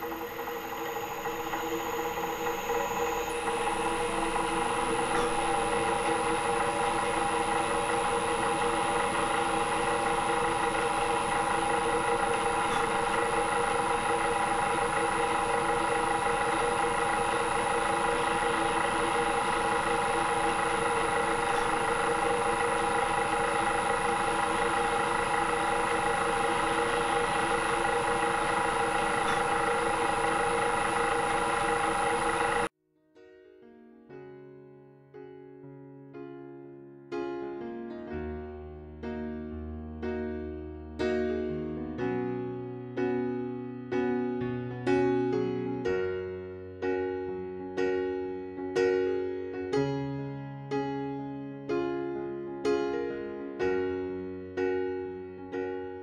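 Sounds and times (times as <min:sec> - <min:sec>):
electric drill drilling metal: 0:00.0 - 0:32.7.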